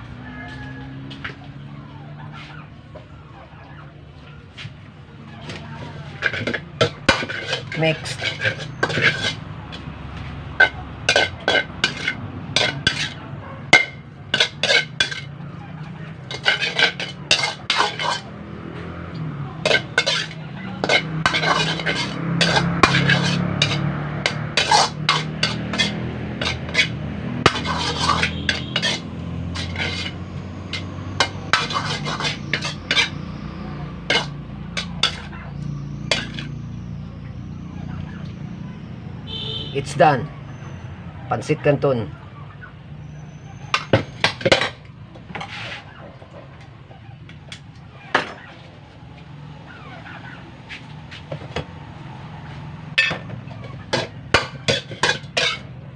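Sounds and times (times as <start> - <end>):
metal ladle clanking in wok: 5.5 - 9.4, 10.6 - 15.4, 16.2 - 18.3, 19.6 - 33.2, 34.1 - 35.3, 36.1 - 36.5, 43.7 - 45.6, 53.0 - 55.8.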